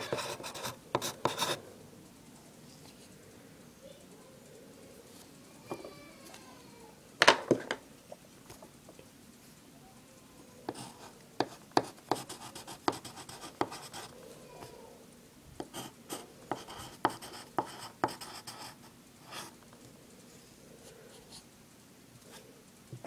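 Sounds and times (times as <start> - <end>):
pencil scratching on paper: 0.0 - 1.6, 10.7 - 14.1, 15.6 - 19.6.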